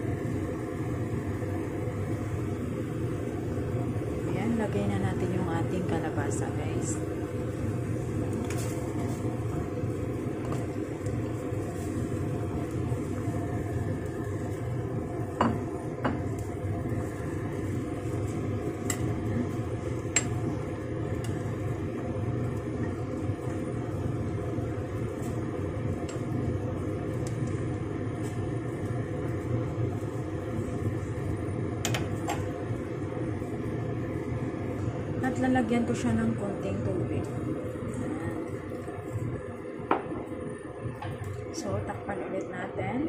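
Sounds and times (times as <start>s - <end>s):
soup bubbling in a pot: 0.0s - 4.2s, 6.8s - 35.2s, 37.3s - 41.5s.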